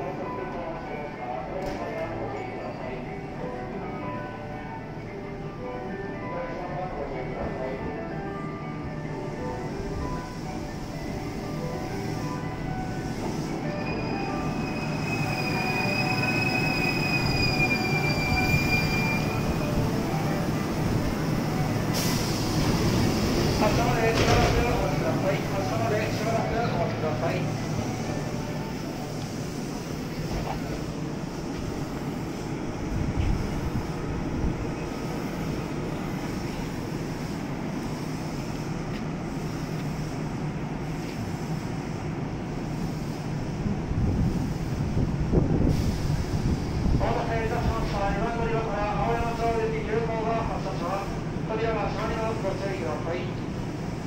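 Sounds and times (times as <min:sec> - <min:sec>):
electric train rumbling: 0:00.0 - 0:54.0
high brake squeal: 0:13.6 - 0:19.7.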